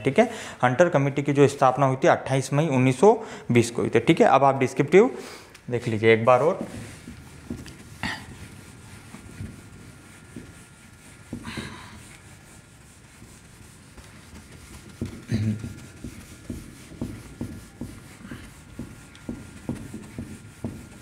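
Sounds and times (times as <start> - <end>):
duster rubbing on whiteboard: 5.8 - 21.0.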